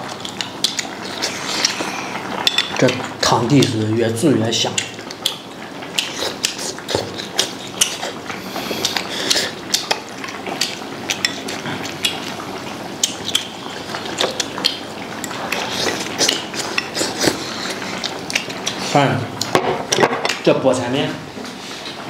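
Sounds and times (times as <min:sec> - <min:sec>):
wet chewing smacks: 0:00.1 - 0:03.0, 0:04.6 - 0:19.5
slurping food: 0:01.0 - 0:02.6, 0:06.0 - 0:10.0, 0:15.4 - 0:18.9.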